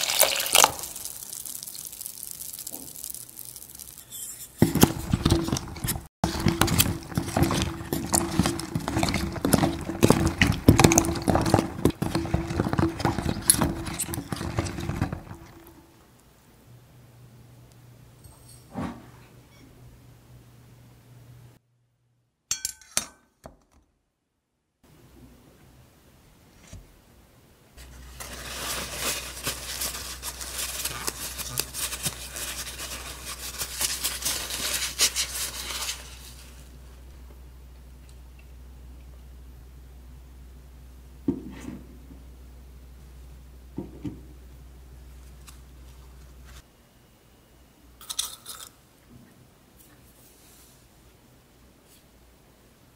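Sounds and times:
paper towel rustling: 1.0 - 15.5, 27.8 - 36.8
water sloshing: 5.1 - 15.7.

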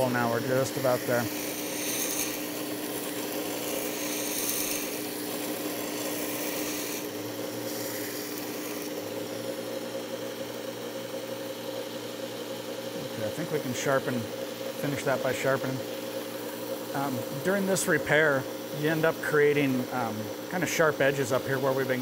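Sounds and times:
motor hum: 0.0 - 22.0
belt grinding knife steel: 0.2 - 9.1.

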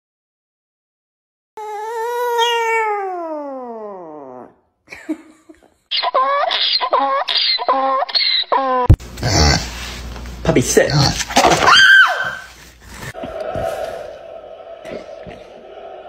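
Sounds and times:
small dog howling: 1.6 - 4.5.

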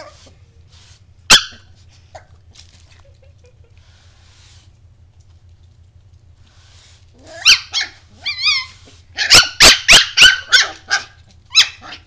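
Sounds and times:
puppy yapping barks: 1.3 - 2.3, 7.4 - 12.0
puppy yelp: 1.3 - 2.3, 7.2 - 12.0.

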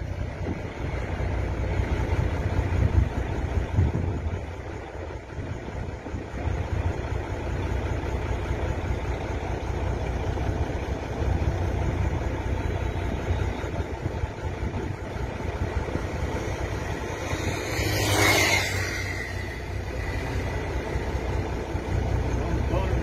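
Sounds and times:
rush of noise: 0.0 - 23.0
vehicle engine idling: 0.0 - 23.0.

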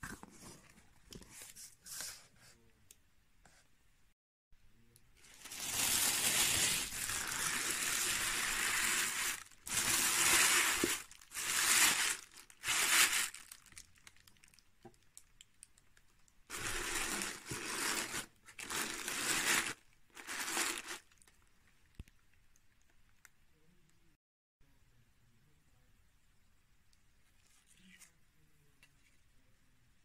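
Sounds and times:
tissue paper crinkling: 5.2 - 14.6, 16.5 - 21.4.

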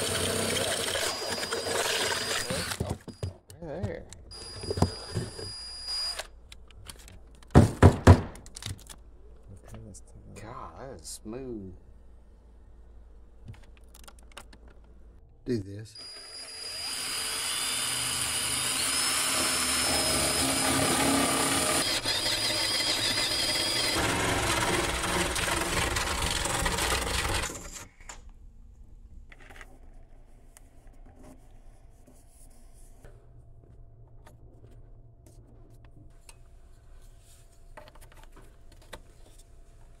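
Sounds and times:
drill bit cutting wood: 0.0 - 3.0, 4.3 - 6.2, 16.0 - 27.7
cordless drill motor whining: 0.0 - 3.3, 4.3 - 6.3, 16.0 - 25.6.

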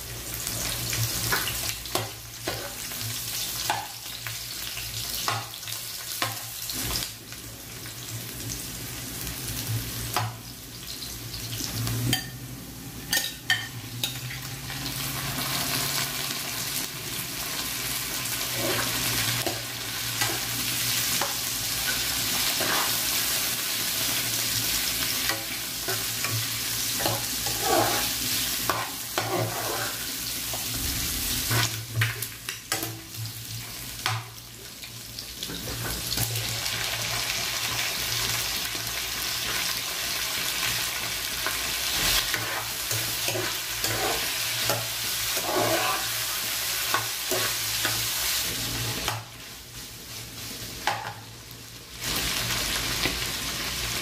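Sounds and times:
food sizzling in a frying pan: 0.0 - 54.0
metal spoon scraping a pan: 21.2 - 23.0, 27.0 - 30.1, 41.9 - 48.1.

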